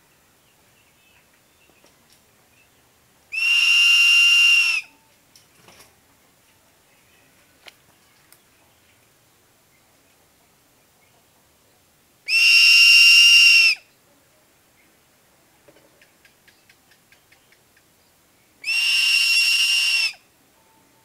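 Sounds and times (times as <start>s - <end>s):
eagle whistling calls: 3.3s - 4.9s, 12.3s - 13.8s, 18.6s - 20.2s.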